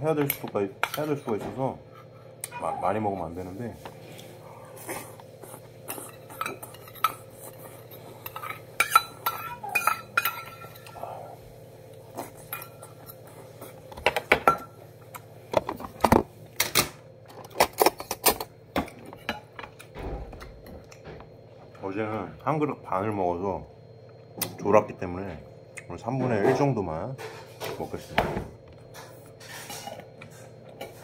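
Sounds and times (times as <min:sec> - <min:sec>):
steady low hum: 0:00.0 - 0:31.0
dishes clinking: 0:05.9 - 0:11.0, 0:13.9 - 0:14.8
spoon clinking against metal bowl: 0:08.2 - 0:10.9.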